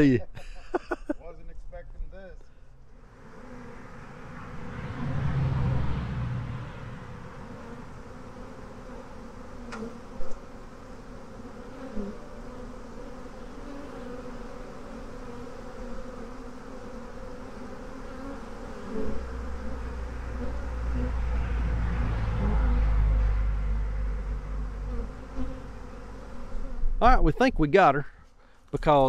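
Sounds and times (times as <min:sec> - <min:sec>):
bees buzzing: 0:02.9 - 0:27.0
low rumble: 0:04.4 - 0:07.4, 0:19.8 - 0:24.9.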